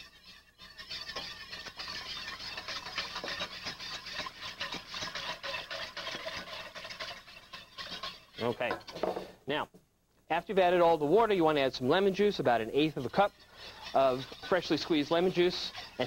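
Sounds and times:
whisk scraping a pot: 0.0 - 9.4, 10.6 - 16.0.

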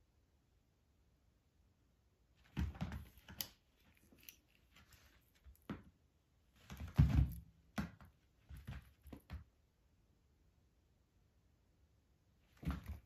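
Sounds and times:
cat scrabbling on a rug: 2.4 - 4.1, 6.6 - 9.5, 12.5 - 13.0.

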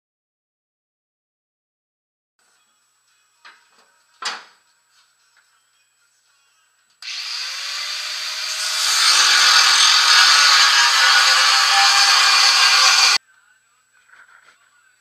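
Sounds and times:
angle grinder cutting metal: 7.0 - 13.2.

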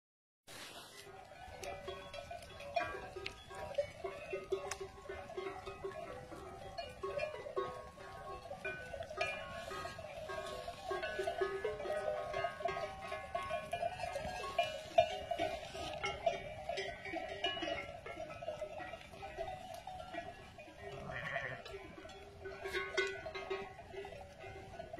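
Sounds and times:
sheep bells clanking: 0.8 - 24.9.

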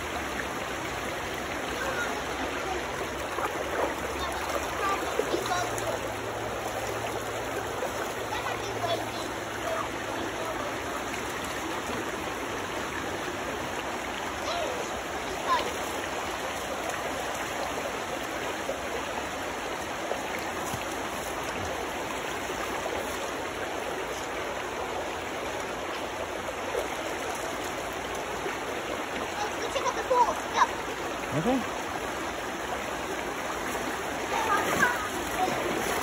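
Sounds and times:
river water running over rocks: 0.0 - 36.0.

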